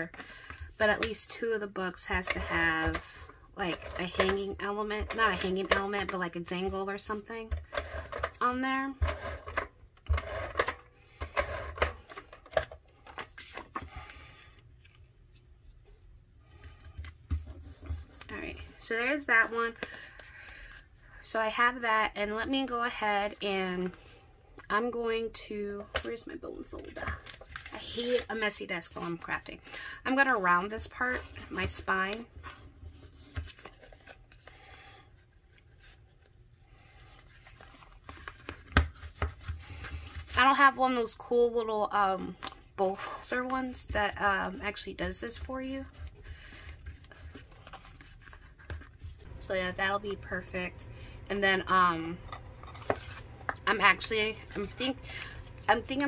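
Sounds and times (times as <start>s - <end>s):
cardstock rustling: 45.0s - 49.4s, 51.8s - 56.0s.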